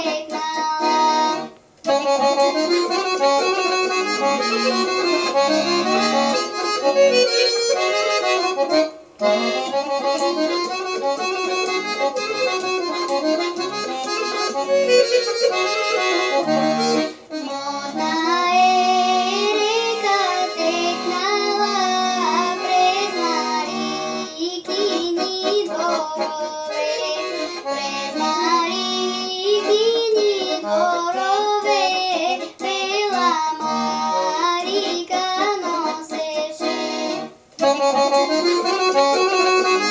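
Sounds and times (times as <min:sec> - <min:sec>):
girl singing: 0:00.0 - 0:05.7, 0:17.3 - 0:37.1
accordion folk tune: 0:00.0 - 0:39.9.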